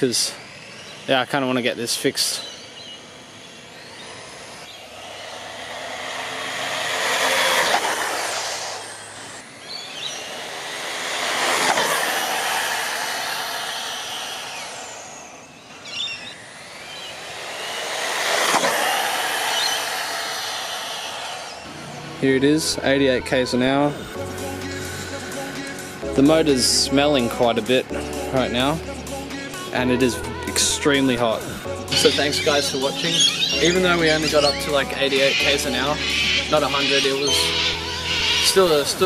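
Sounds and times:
electric rc car motor whining: 0.0s - 26.0s, 27.2s - 39.0s.

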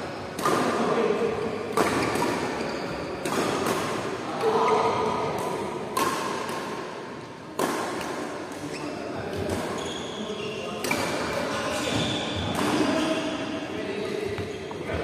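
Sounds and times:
rackets hitting shuttlecock: 0.3s - 1.0s, 1.7s - 9.8s, 10.8s - 13.0s.

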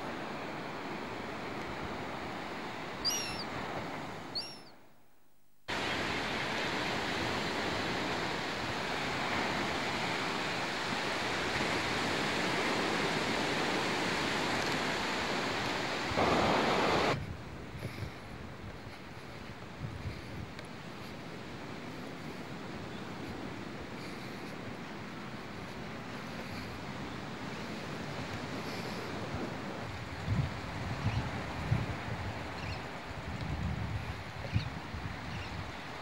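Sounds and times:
ocean surf washing on beach: 0.0s - 4.6s, 5.7s - 36.0s
short high bird calls: 3.0s - 3.5s, 4.3s - 4.8s.

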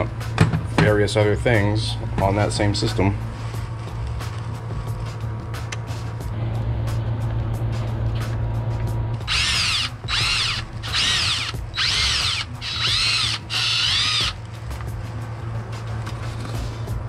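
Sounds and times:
cordless drill whining: 9.2s - 14.5s.

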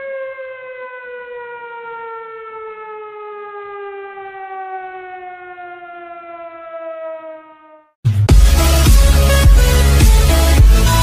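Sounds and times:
siren-like tone gliding down: 0.0s - 8.0s.

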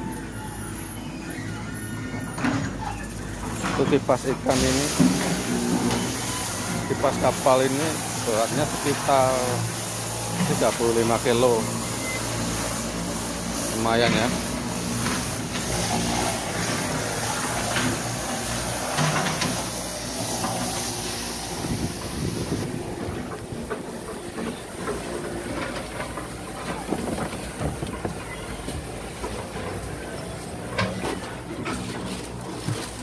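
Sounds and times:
pressure washer hissing: 3.3s - 29.2s.

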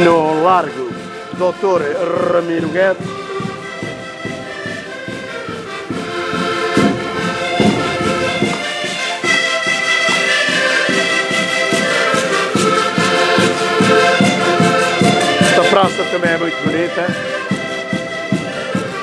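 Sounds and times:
button accordions playing lively tune: 0.0s - 19.0s
pulsing bass beat: 6.8s - 8.7s.

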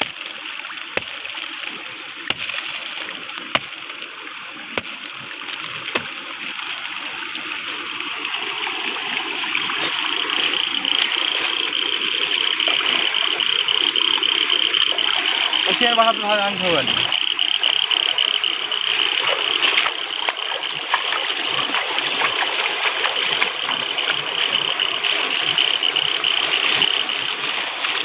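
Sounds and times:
rain hissing: 0.0s - 20.8s.

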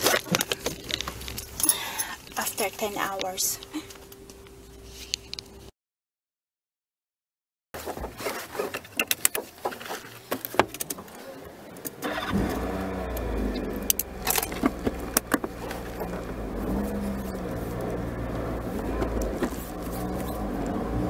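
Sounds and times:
car engine starting and idling: 0.0s - 5.7s, 11.0s - 21.0s
keys jangling: 0.2s - 2.2s.

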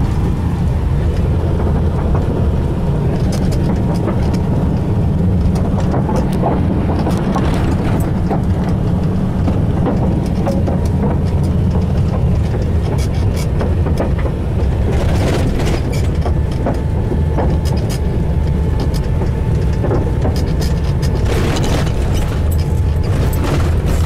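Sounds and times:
engine and tyre rumble: 0.0s - 24.0s.

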